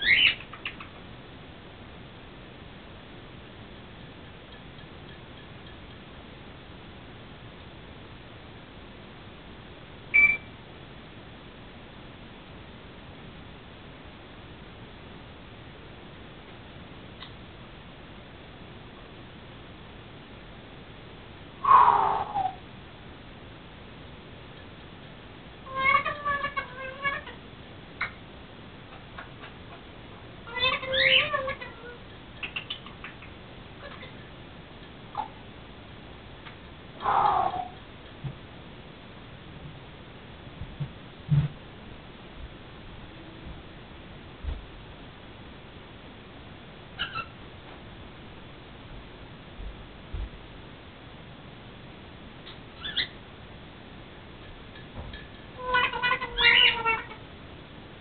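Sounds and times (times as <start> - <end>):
parrot loud call: 0.0 - 0.8, 21.6 - 22.6, 30.5 - 32.8, 37.0 - 37.8, 47.0 - 47.4, 52.8 - 53.2, 55.6 - 57.2.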